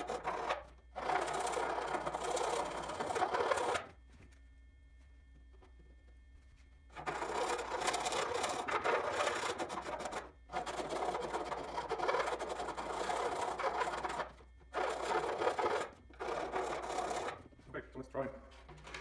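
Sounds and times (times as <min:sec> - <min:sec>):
file rasping: 0:00.0 - 0:03.9, 0:07.0 - 0:17.5.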